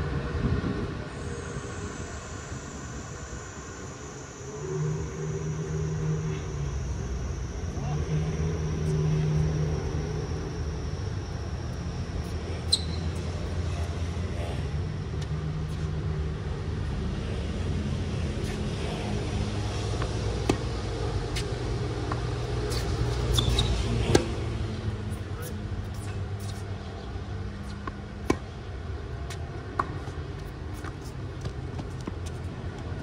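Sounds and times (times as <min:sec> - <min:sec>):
city traffic rumble: 0:00.0 - 0:33.0
racket striking tennis ball: 0:22.1 - 0:24.4.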